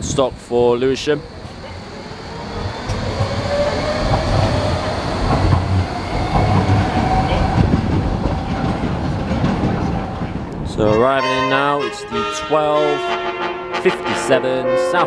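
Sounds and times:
train wheels rumbling on rails: 0:00.0 - 0:11.7
electric motor whine rising: 0:00.7 - 0:09.3.

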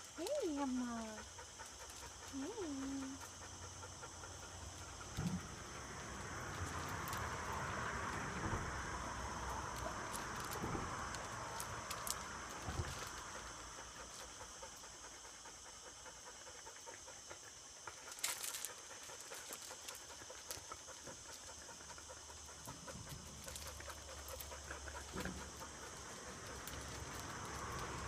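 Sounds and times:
dogs panting: 0:00.0 - 0:28.0.

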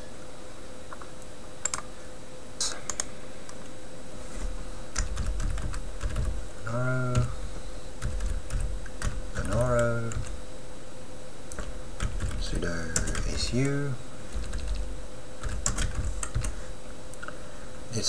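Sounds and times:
computer keyboard typing: 0:01.6 - 0:01.8, 0:04.9 - 0:06.4, 0:07.1 - 0:07.4, 0:08.0 - 0:10.4, 0:11.5 - 0:16.6.

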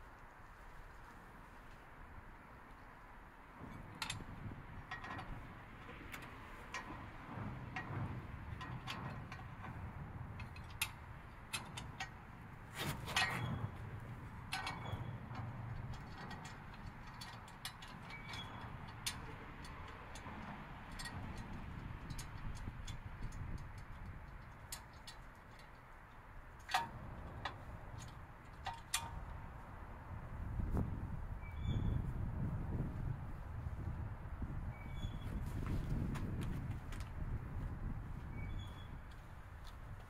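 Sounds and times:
low outdoor rumble: 0:00.0 - 0:40.0
tools and hardware clicking: 0:03.6 - 0:29.4.

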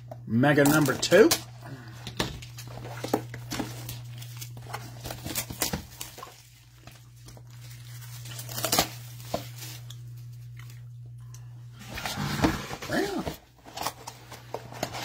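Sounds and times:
steady low hum: 0:00.0 - 0:15.0
plastic wrap tearing and crinkling: 0:00.6 - 0:10.8.

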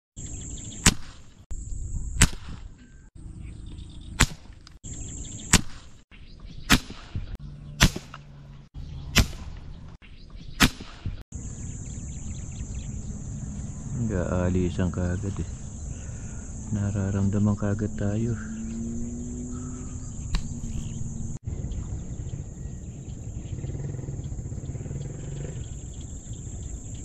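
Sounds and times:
rubber-band spear snaps: 0:00.8 - 0:01.3, 0:02.2 - 0:02.7, 0:04.2 - 0:04.8, 0:05.5 - 0:05.9, 0:06.7 - 0:07.2, 0:07.8 - 0:08.3, 0:09.1 - 0:09.6, 0:10.6 - 0:11.2, 0:20.3 - 0:20.5
high insect drone: 0:11.4 - 0:27.0.

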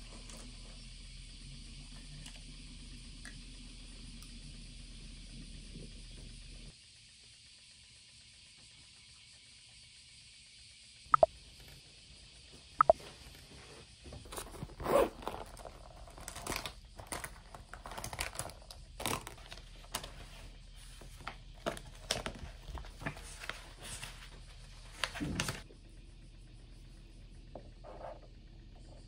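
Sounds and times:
paper sheets leafed through: 0:13.0 - 0:25.6
rustling of pencil pouch: 0:14.1 - 0:25.6.

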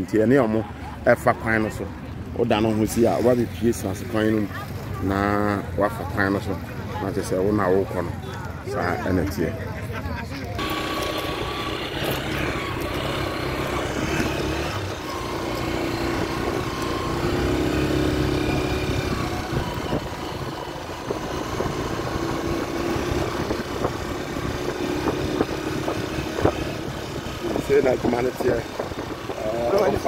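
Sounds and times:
vehicle engine droning: 0:10.5 - 0:30.0.

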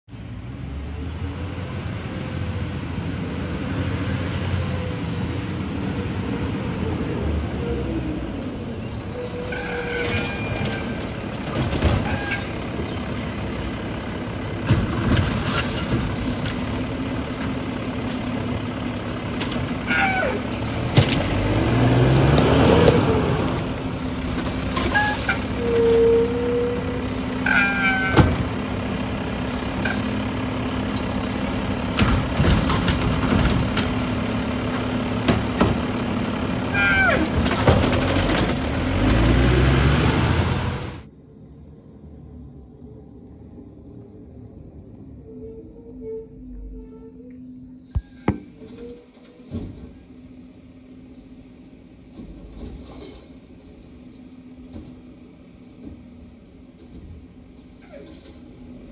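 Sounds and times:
diesel engine running and revving: 0:00.1 - 0:45.6
high squeaks: 0:07.2 - 0:13.2, 0:23.8 - 0:28.3, 0:45.3 - 0:49.5.

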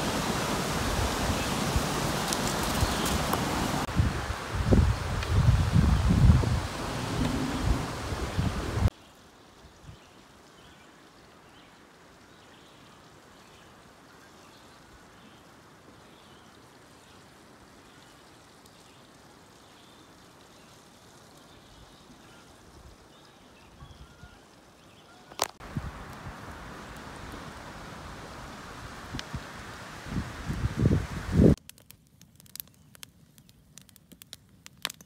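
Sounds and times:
wind noise on microphone: 0:00.2 - 0:08.9, 0:25.6 - 0:26.6, 0:28.8 - 0:31.6.

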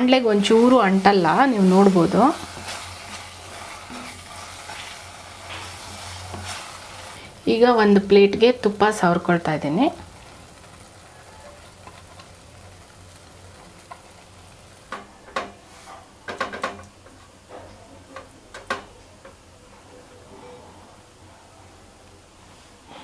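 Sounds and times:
low kitchen background: 0:00.0 - 0:23.0
utensils clinking and scraping a pan: 0:00.3 - 0:07.2.

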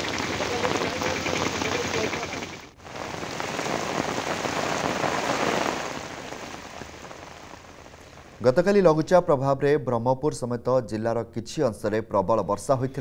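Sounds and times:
heavy rain pouring: 0:00.0 - 0:08.7.

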